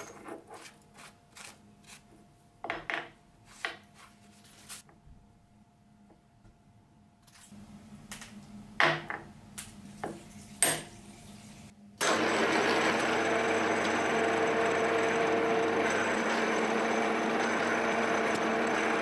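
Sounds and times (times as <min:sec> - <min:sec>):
milling machine drilling metal: 0:12.0 - 0:19.0.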